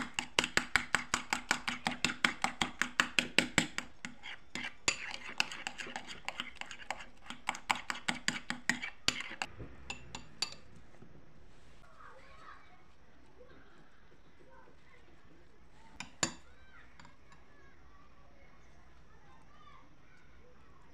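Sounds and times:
metal spoon stirring in ceramic bowl: 0.0 - 11.1, 15.7 - 17.5.

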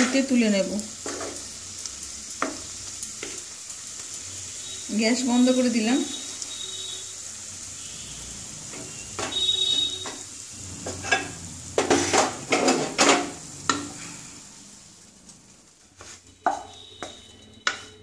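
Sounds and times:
greens sizzling faintly: 0.0 - 17.1
spatula scraping a pan: 10.0 - 14.2.

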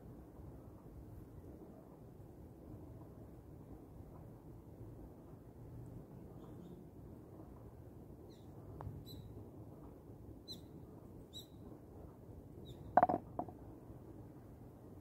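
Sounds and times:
ball knocking in the hole: 13.0 - 13.5
putter striking golf ball: 13.0 - 13.5.

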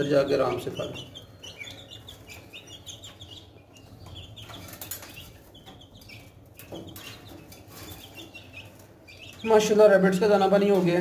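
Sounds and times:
baby chicks peeping: 0.0 - 11.0.

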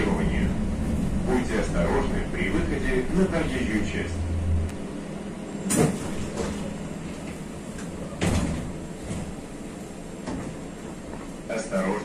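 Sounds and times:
low hum: 0.0 - 8.2
tram doors closing thuds: 5.6 - 11.3.

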